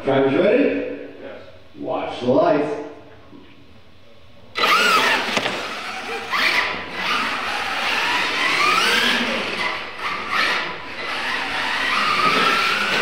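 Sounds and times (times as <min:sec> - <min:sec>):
electric motors whining: 0:04.5 - 0:13.0.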